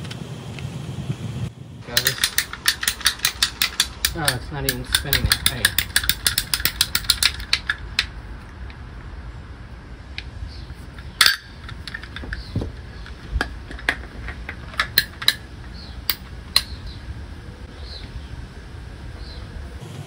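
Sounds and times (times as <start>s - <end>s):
ratcheting pipe cutter clicking: 1.9s - 8.8s, 10.9s - 16.8s.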